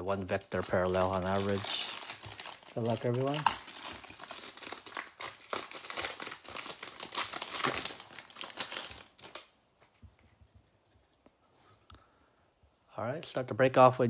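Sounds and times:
plastic wrapper crinkling: 0.0s - 9.6s.

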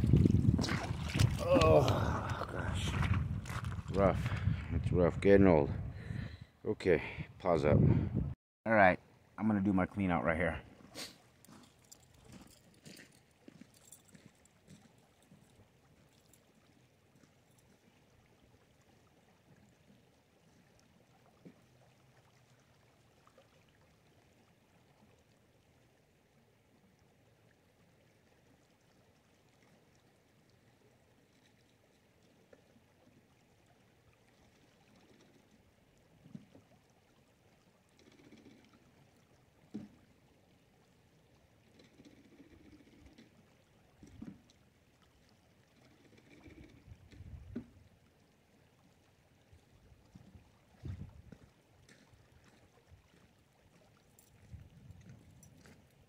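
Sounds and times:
water sloshing and pouring: 0.0s - 4.5s, 10.7s - 25.8s, 28.2s - 56.0s
gentle water flow: 0.0s - 8.0s, 8.7s - 56.0s.

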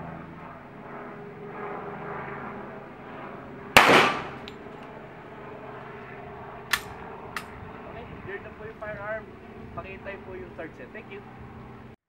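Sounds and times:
pistol shot: 3.8s - 4.5s.

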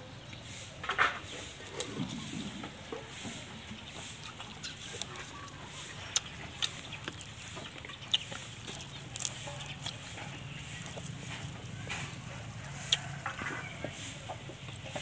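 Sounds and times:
chickens clucking: 0.0s - 15.0s
food handled by hand clicks: 4.4s - 12.3s.

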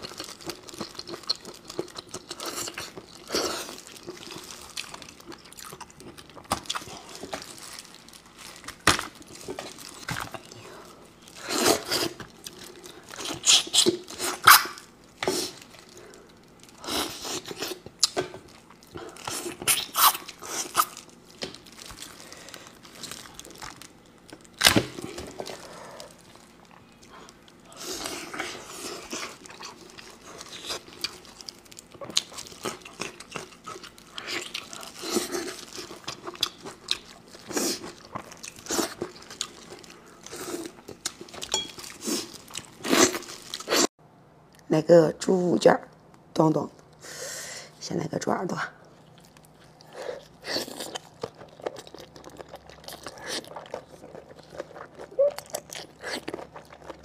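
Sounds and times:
crunching and wet chewing: 0.0s - 43.9s, 48.8s - 57.0s
meat tearing off bone: 11.4s - 15.8s, 19.2s - 26.1s.

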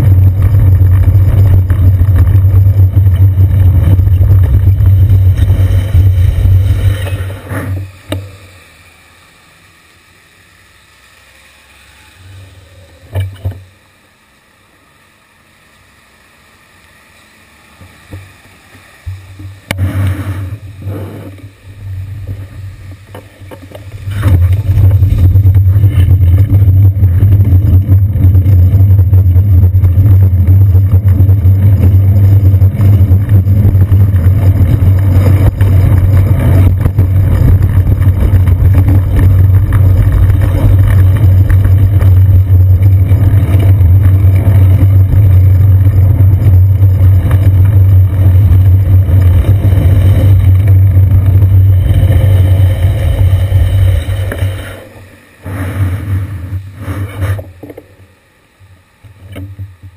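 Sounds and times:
wind buffeting and road rumble: 0.0s - 8.1s, 19.1s - 54.7s
muffled street sound: 0.0s - 59.9s.

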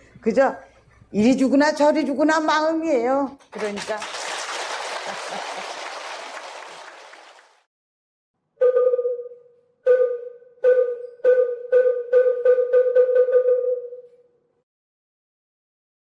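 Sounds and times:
wooden percussion strokes: 8.6s - 14.1s.

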